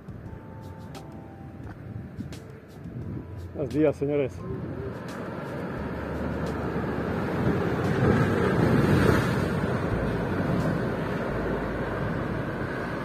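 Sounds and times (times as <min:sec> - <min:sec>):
ocean waves breaking on rocks: 0:05.0 - 0:13.0.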